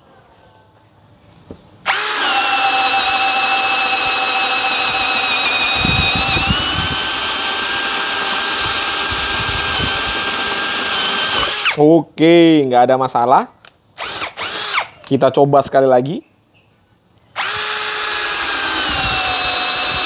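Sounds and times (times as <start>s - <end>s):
drill bit chattering in wood: 1.9s - 11.8s, 17.4s - 20.0s
drill motor whining: 1.9s - 11.8s, 14.0s - 14.9s, 17.4s - 20.0s.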